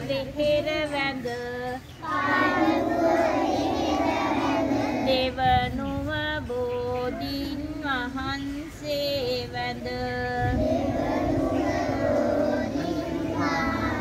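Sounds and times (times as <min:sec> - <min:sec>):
children chanting in unison: 0:02.0 - 0:05.2, 0:10.5 - 0:14.0.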